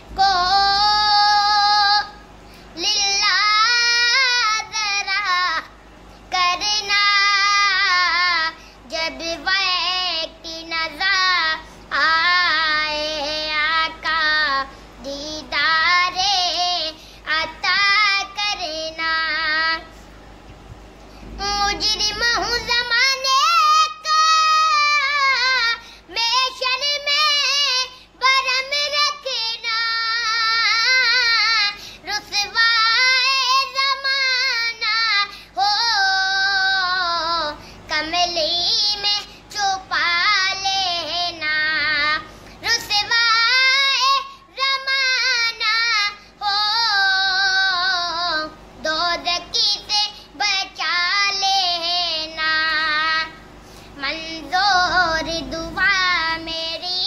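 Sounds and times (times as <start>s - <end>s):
person singing solo devotional song: 21.0s - 57.0s.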